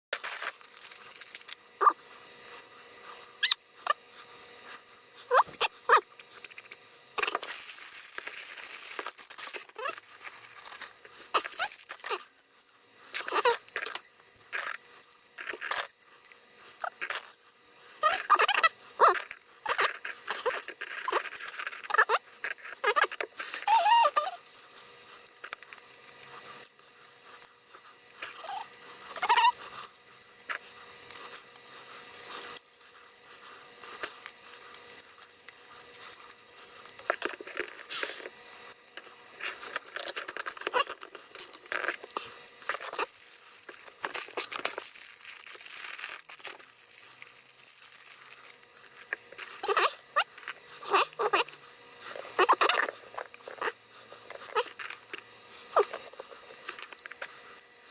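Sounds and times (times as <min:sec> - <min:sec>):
plastic packaging crinkling: 0:00.2 - 0:05.0, 0:05.9 - 0:16.3, 0:38.9 - 0:49.8
high squeaky glides: 0:03.4 - 0:04.0.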